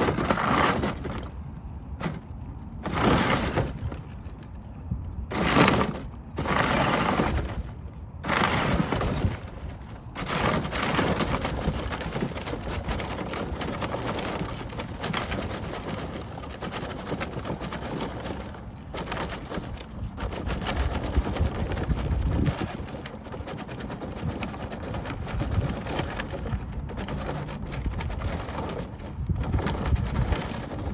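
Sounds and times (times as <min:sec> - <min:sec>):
plastic wheels crunching on gravel: 0:00.0 - 0:30.9.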